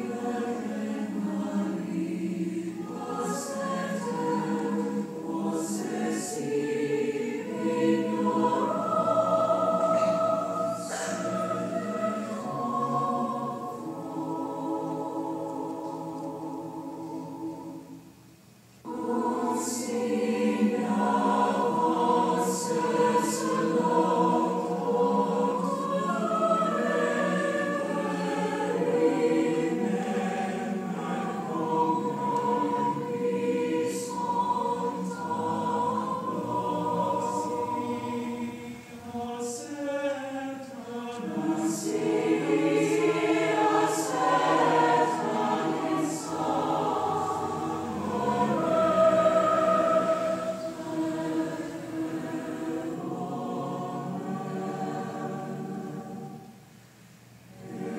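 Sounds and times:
choir singing slow chords: 0.0 - 57.9.

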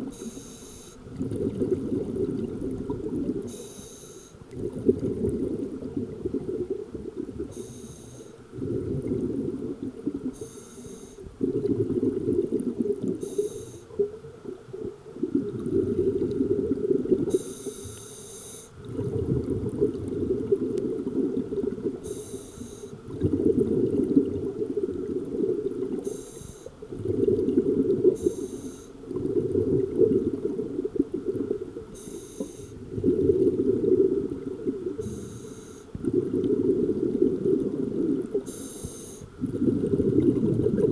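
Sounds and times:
regulator inhale hiss: 0.0 - 1.0, 3.5 - 4.4, 7.4 - 8.4, 10.4 - 11.3, 13.2 - 14.0, 17.3 - 18.8, 22.0 - 23.0, 26.0 - 26.8, 28.2 - 29.0, 32.0 - 32.8, 35.0 - 36.0, 38.4 - 39.4
exhaust bubbles rumbling: 1.1 - 3.5, 4.5 - 7.5, 8.5 - 10.4, 11.3 - 13.2, 14.0 - 17.3, 18.8 - 22.0, 23.0 - 26.0, 26.8 - 28.2, 29.0 - 32.0, 32.8 - 35.0, 36.0 - 38.5, 39.3 - 40.9.

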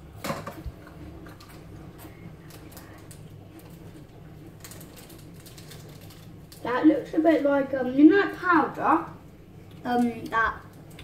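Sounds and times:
plastic tray and wrappers rustling: 4.6 - 6.7.

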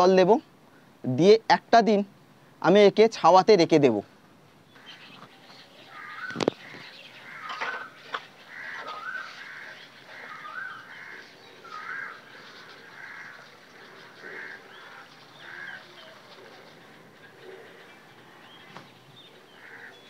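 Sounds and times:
bird calling: 4.6 - 20.0.

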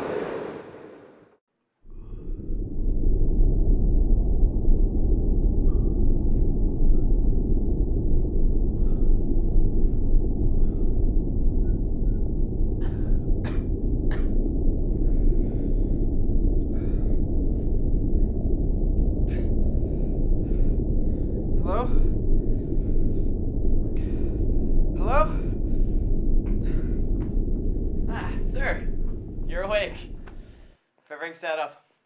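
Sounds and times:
steady low rumble: 1.9 - 30.8
man breathing and gasping: 14.9 - 18.4, 19.2 - 27.5.

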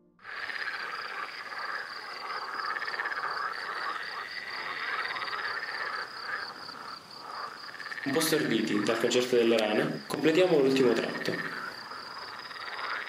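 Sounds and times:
frogs croaking: 0.2 - 13.0.

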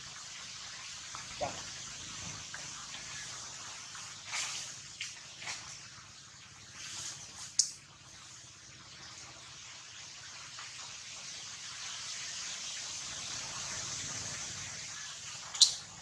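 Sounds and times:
high-pitched outdoor hiss: 0.0 - 16.0.

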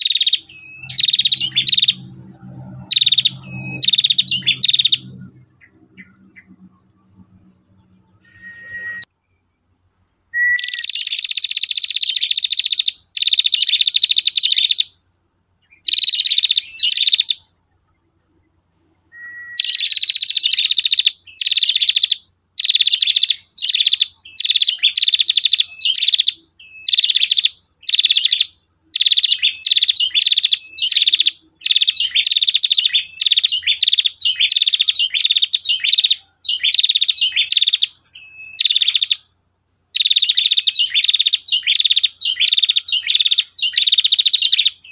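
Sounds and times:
bird rattling trill: 0.0 - 6.4, 15.8 - 17.4, 19.5 - 39.3, 39.9 - 44.8.

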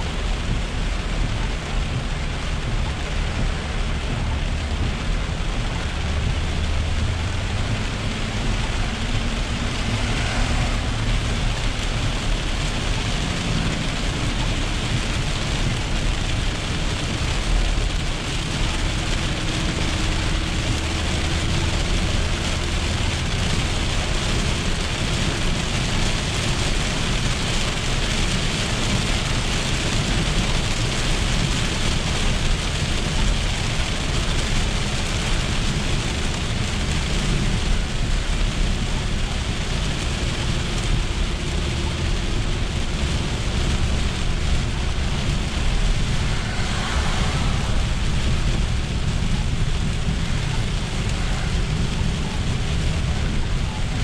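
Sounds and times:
heavy rain on a car: 0.0 - 54.0
tyre noise on wet road: 0.0 - 54.0.

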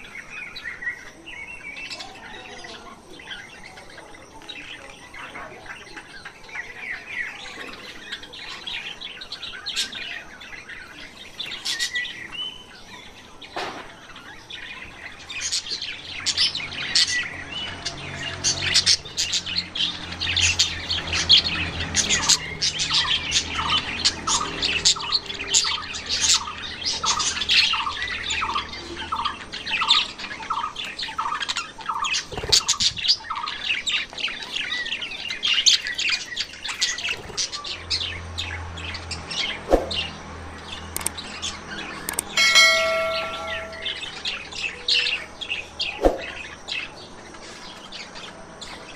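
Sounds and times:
finches chirping: 0.0 - 48.9
repeated lower notes: 42.1 - 44.2.

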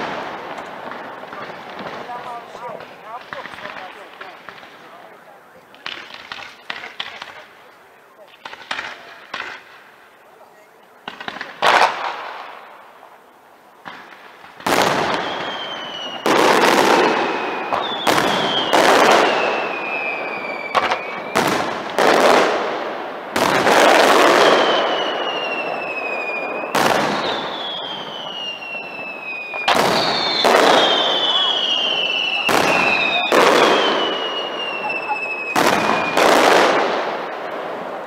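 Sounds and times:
firework shells bursting: 13.8 - 37.8
high descending firework whistle: 15.0 - 16.4, 17.0 - 21.5, 24.3 - 36.2.

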